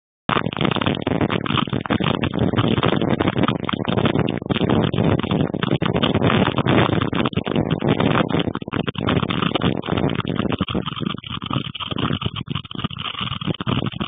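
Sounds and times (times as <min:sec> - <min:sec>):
storm wind and rain rushing: 0:00.3 - 0:14.0.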